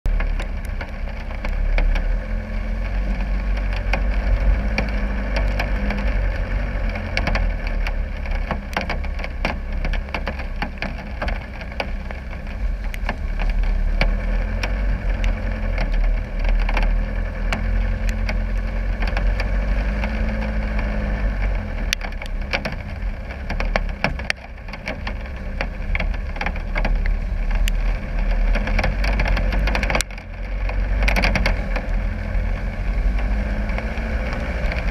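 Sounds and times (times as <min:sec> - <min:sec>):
diesel engine running low: 0:00.1 - 0:34.9
sharp clicks and taps: 0:21.8 - 0:32.1.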